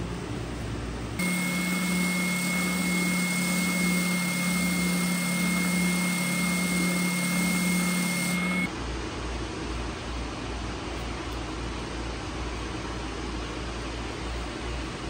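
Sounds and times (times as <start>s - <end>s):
belt sander running: 1.2s - 8.7s.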